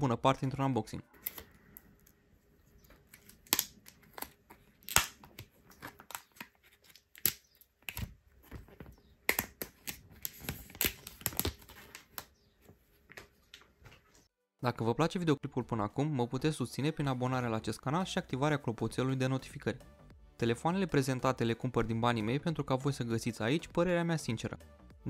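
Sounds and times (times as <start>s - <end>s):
plastic film crinkling and tearing: 3.0s - 8.2s, 9.3s - 12.3s.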